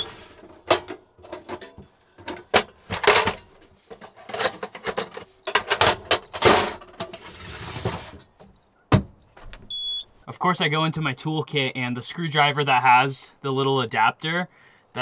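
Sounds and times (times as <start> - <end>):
metal toolbox opening: 0.0 - 8.3
hand tools clanking and rattling: 0.0 - 8.6.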